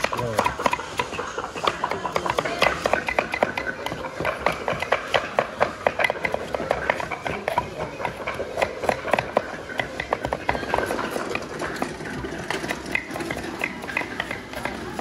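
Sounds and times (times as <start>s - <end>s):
knife chopping on wooden board: 0.0s - 11.2s.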